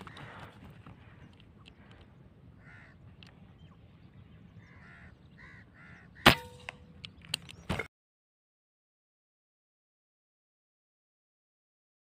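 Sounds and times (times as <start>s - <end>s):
air rifle shot: 6.2s - 6.9s.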